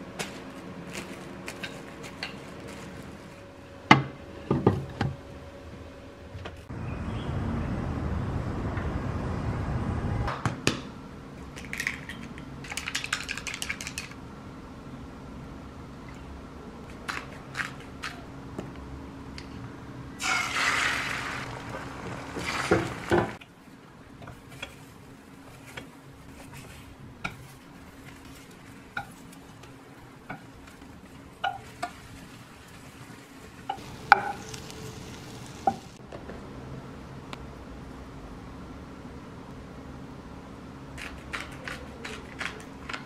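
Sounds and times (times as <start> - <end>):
hissing stirring noise: 20.2 - 23.4, 30.4 - 36.0.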